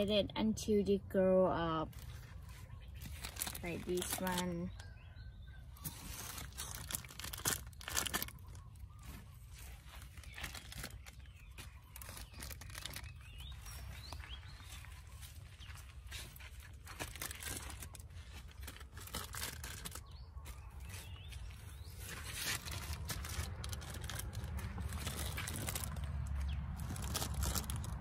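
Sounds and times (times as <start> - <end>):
plastic bags rustling and crinkling: 1.9 - 4.8, 5.8 - 28.0
small crackles and snaps: 6.3 - 8.6.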